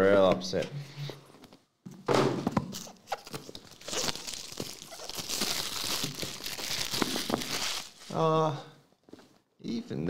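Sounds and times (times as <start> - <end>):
packaging rustling: 2.7 - 8.2.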